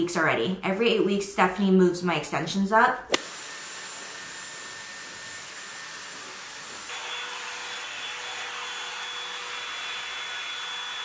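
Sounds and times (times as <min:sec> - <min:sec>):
hair dryer blowing: 0:03.1 - 0:11.0.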